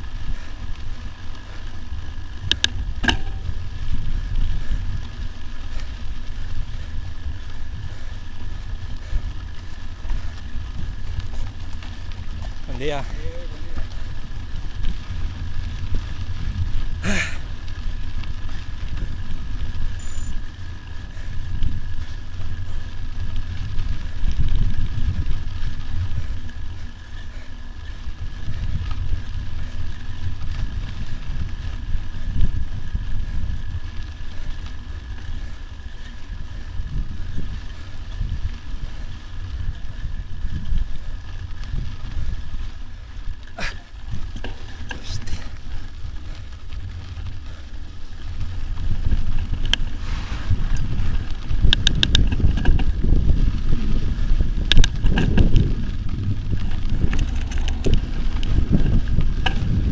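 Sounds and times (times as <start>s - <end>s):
bike rolling on dirt track: 0.0s - 59.9s
wind buffeting microphone: 0.0s - 59.9s.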